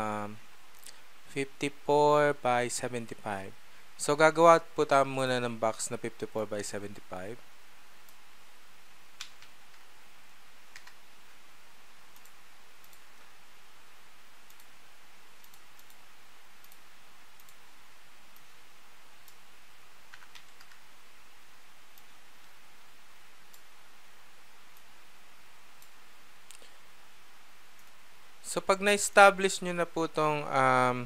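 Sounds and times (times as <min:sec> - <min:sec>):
steady hiss: 0:00.0 - 0:31.0
computer mouse clicks: 0:09.2 - 0:09.9, 0:10.7 - 0:11.0, 0:12.1 - 0:13.3, 0:14.4 - 0:14.8, 0:15.4 - 0:16.0, 0:16.6 - 0:17.6, 0:19.2 - 0:19.4, 0:20.1 - 0:20.8, 0:23.5 - 0:23.7, 0:25.8 - 0:26.8, 0:27.8 - 0:28.0.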